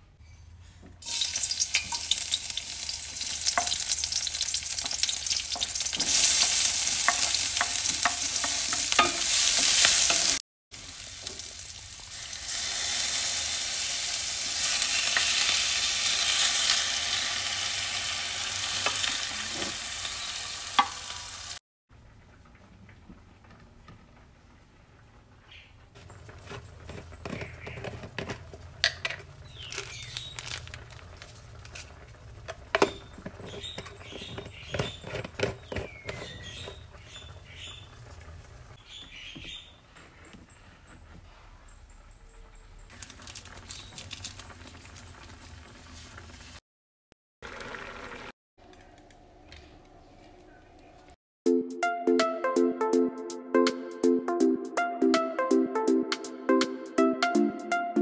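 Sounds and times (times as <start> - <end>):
stirring in a wok: 1.0 - 16.8
food sizzling in hot oil: 1.0 - 21.6, 47.4 - 48.3.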